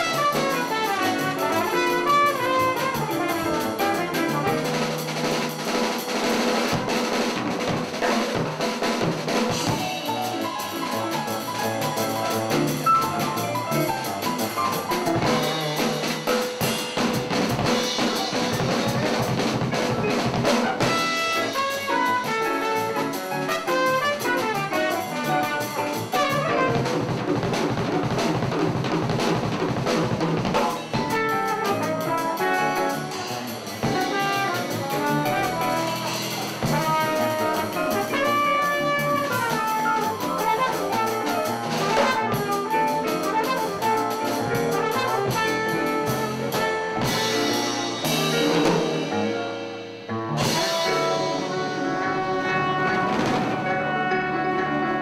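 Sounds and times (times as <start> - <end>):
trumpet melody: 0.0 - 8.3, 17.0 - 27.2, 30.9 - 55.0
drum kit: 0.0 - 55.0
upright bass: 6.8 - 55.0.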